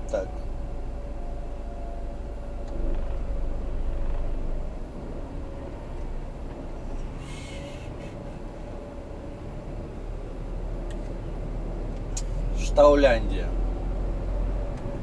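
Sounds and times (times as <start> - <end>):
steady hum: 0.0 - 10.6
truck diesel engine rumbling: 0.0 - 15.0.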